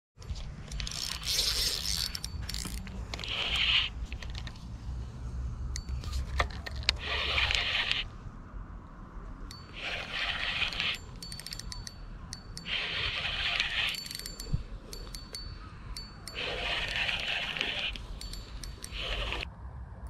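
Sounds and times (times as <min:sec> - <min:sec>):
fishing reel cranking: 0:00.8 - 0:04.0, 0:09.5 - 0:19.5.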